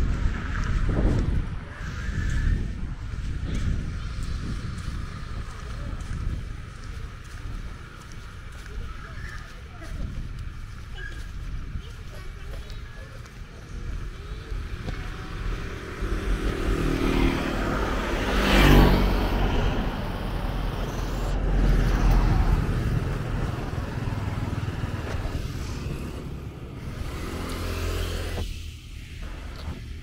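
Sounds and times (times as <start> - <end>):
traffic rumble: 0.0 - 30.0
vehicle passing close: 14.5 - 30.0.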